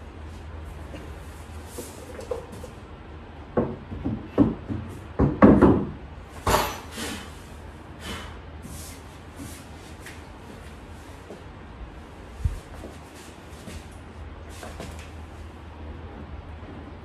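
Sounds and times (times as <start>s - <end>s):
shelf panels knocking and clattering: 3.5s - 6.9s.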